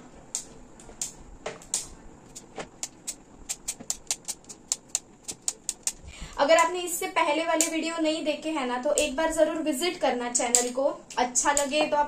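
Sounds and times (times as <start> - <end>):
manual chopper chopping clicks: 0.3 - 6.7, 8.9 - 9.2, 10.5 - 12.0.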